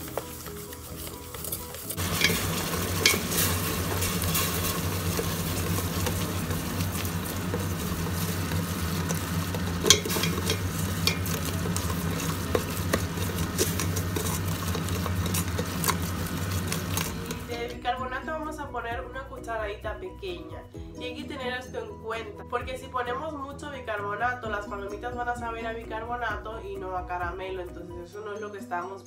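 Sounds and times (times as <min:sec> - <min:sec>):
syrup bubbling and sizzling: 0:00.0 - 0:17.6
utensil scraping and knocking pot: 0:00.0 - 0:17.8.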